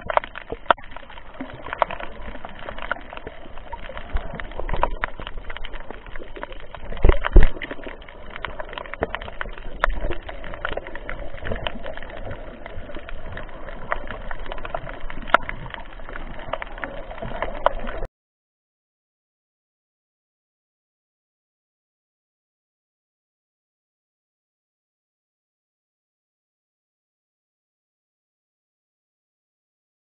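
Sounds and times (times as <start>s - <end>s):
underwater clicks crackling: 0.0s - 18.1s
underwater rumble of moving water: 0.0s - 18.1s.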